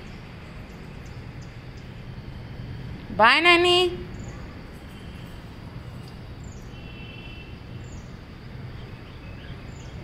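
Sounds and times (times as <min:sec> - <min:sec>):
small birds chirping: 0:00.0 - 0:02.4, 0:03.6 - 0:10.0
outdoor background hum: 0:00.0 - 0:10.0.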